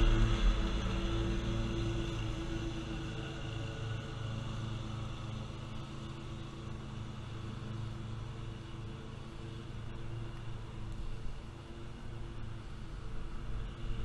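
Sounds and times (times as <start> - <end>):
mower engine droning: 0.0 - 14.0.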